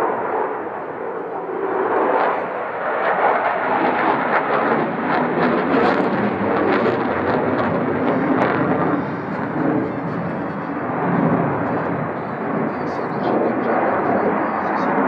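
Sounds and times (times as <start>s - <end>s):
crackling jet engine noise: 0.0s - 15.0s.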